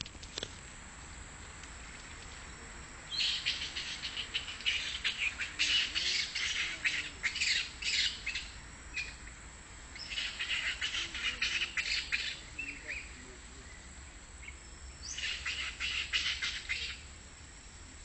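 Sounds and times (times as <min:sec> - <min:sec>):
animal chattering: 0:10.1 - 0:13.1.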